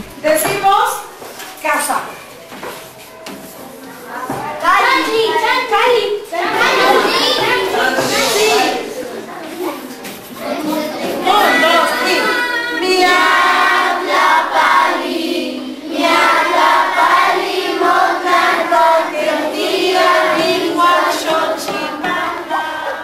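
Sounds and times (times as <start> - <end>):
children singing together: 6.4 - 9.2, 10.4 - 23.0.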